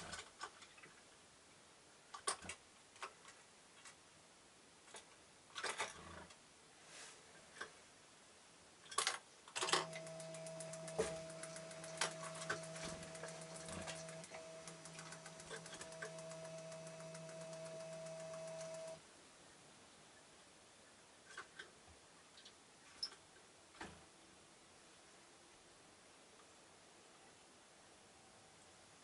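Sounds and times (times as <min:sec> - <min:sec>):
small clicks and rattles: 0:04.9 - 0:06.4, 0:08.8 - 0:19.0
sharp clicks: 0:09.0 - 0:19.0
stepping motor humming: 0:09.7 - 0:19.0.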